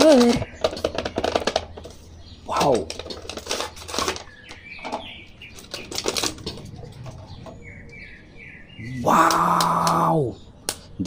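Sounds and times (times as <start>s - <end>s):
plastic and cardboard packaging crinkling: 2.6s - 7.3s.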